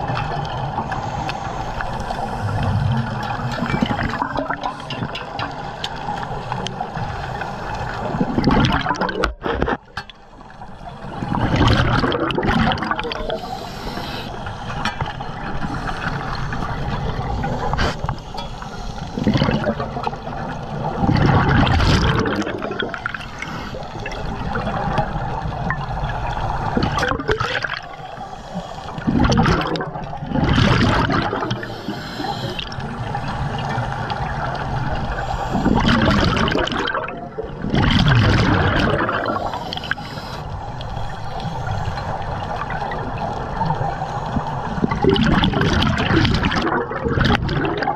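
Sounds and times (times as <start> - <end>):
regulator exhaled bubbles gushing: 0.0 - 9.9, 11.1 - 18.5, 19.1 - 47.9
steady watery rush: 0.0 - 47.9.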